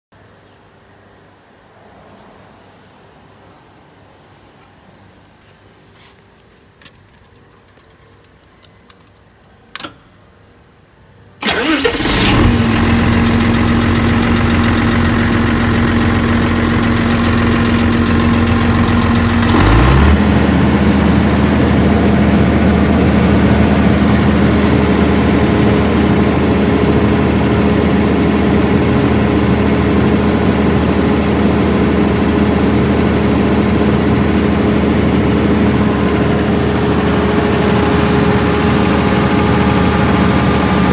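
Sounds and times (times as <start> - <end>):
diesel engine cranking and running: 11.4 - 40.9.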